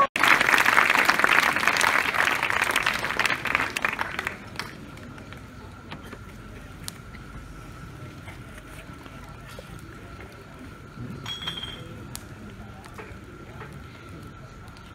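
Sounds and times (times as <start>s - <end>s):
audience applauding: 0.0s - 5.3s
faint steady whine: 0.0s - 14.9s.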